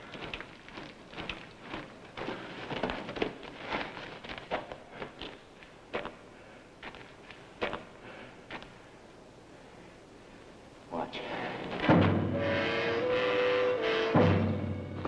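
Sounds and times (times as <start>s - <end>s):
footsteps on gravel: 0.0s - 5.4s.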